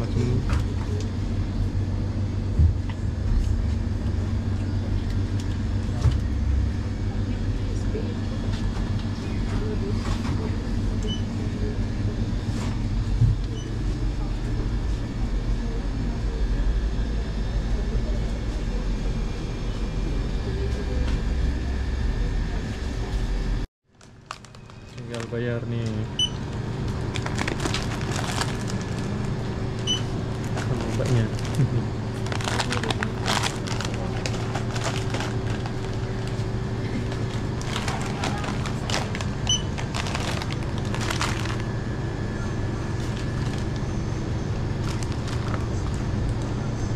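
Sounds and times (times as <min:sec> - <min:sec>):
shop background rumble: 0:00.0 - 0:46.9
steady low hum: 0:00.0 - 0:46.9
plastic packaging crinkling: 0:23.9 - 0:25.4, 0:27.0 - 0:29.4, 0:30.3 - 0:36.4, 0:37.0 - 0:41.8, 0:43.0 - 0:43.8, 0:44.7 - 0:46.0.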